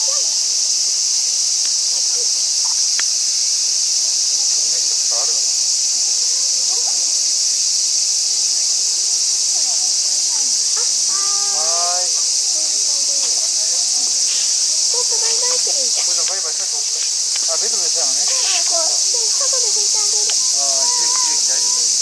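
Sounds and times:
insect chorus drone: 0.0s - 22.0s
faint distant voices: 4.0s - 7.7s, 8.6s - 22.0s.

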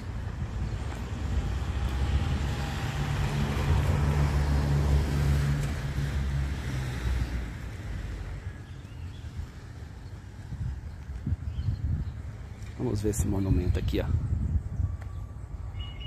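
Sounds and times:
vehicle passing by: 0.0s - 10.7s.

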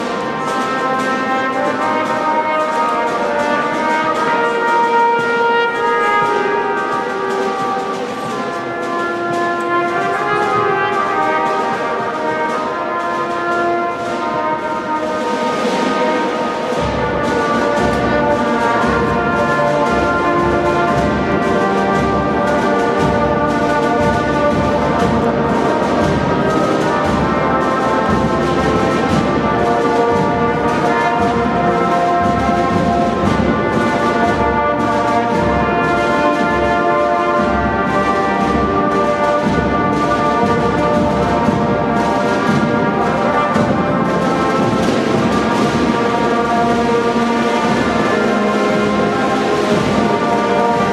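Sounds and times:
brass instruments playing: 0.0s - 50.9s
steady drum beat: 0.0s - 50.9s.

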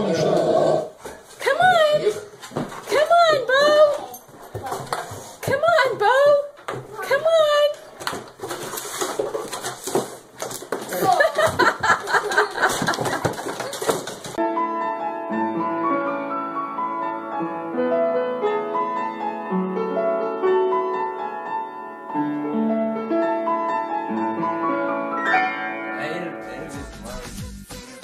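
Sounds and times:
upright piano playing: 14.3s - 27.4s.

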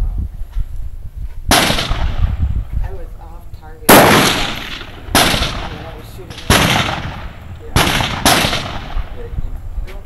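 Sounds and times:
rifle shots with echo: 1.5s - 2.4s, 3.8s - 9.4s.

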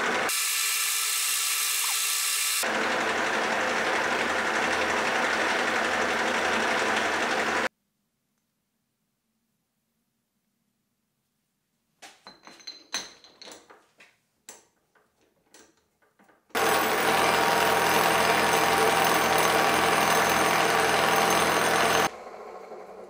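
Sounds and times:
milling machine running: 0.0s - 7.7s, 16.6s - 23.0s
metal tool clicks and clinks: 14.5s - 16.4s.

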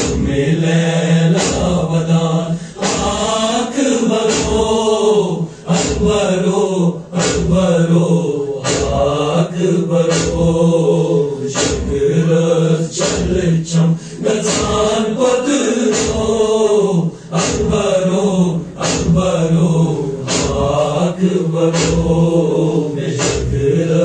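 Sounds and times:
men chanting a lament: 0.0s - 24.0s
heavy thumps: 20.2s - 20.8s.

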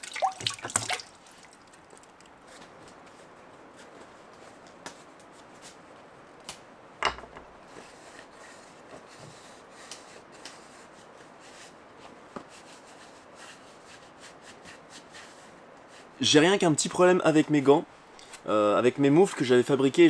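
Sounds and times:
cloth rubbing wooden bowl: 7.6s - 16.2s.

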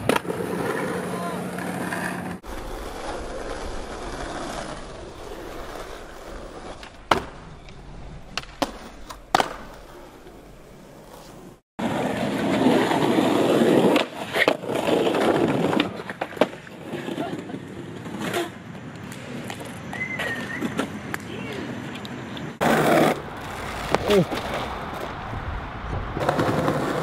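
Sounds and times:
skateboard wheels rolling on concrete: 0.0s - 27.0s
skateboard clacks: 6.8s - 10.4s, 25.8s - 27.0s.

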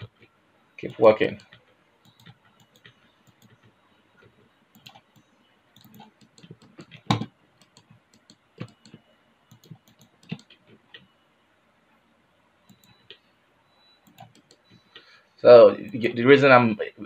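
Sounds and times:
mouse and keyboard clicking: 5.8s - 10.6s, 14.0s - 14.7s.

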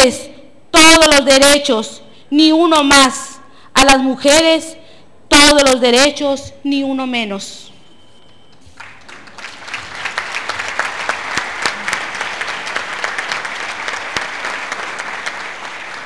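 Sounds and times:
audience applause: 8.7s - 16.0s.

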